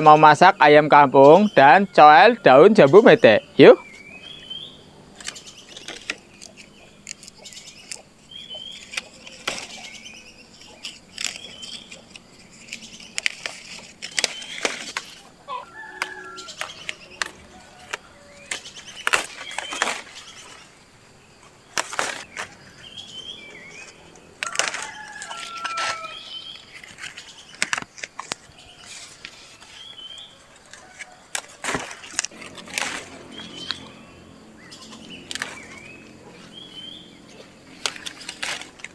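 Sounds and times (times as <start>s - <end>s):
leaves rustling: 0.0s - 38.9s
stalks snapping: 5.2s - 20.6s, 21.6s - 22.7s, 23.7s - 29.7s, 30.6s - 34.0s, 34.8s - 36.2s, 37.2s - 38.9s.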